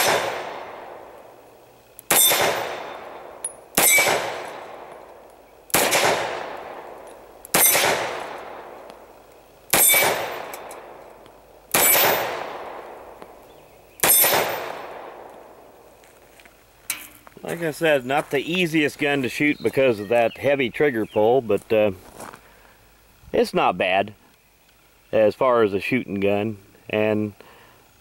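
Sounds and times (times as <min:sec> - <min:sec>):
pistol shots echoing: 0:00.0 - 0:01.4, 0:02.1 - 0:13.4, 0:14.0 - 0:15.8.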